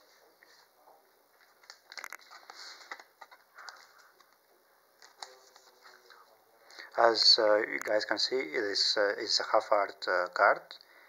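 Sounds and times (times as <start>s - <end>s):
plastic card sleeve rustling: 1.3s - 4.4s, 5.0s - 6.2s.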